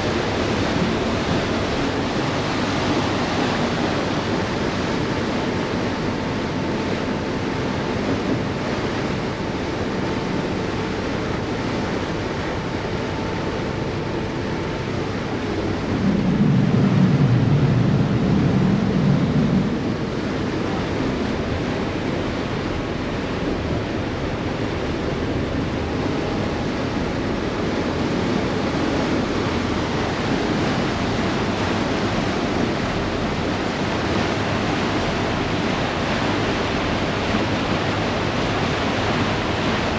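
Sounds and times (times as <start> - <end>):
churning water: 0.0 - 39.9
wind: 0.0 - 39.9
low rumble: 13.6 - 30.3.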